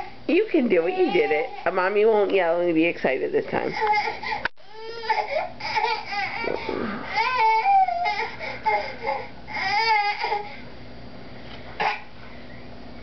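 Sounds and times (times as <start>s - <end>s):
baby whining cries: 0.7s - 1.9s, 3.7s - 10.6s.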